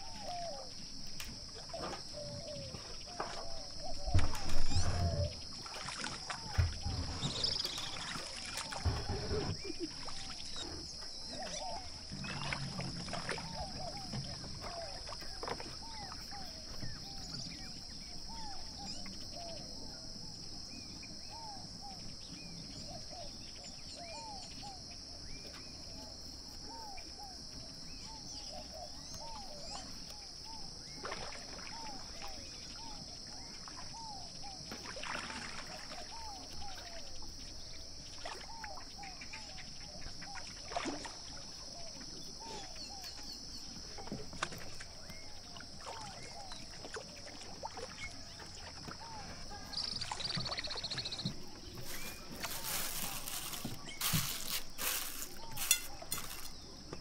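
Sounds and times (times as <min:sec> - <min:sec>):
birds chirping: 0:00.0 - 0:19.1, 0:48.0 - 0:57.0.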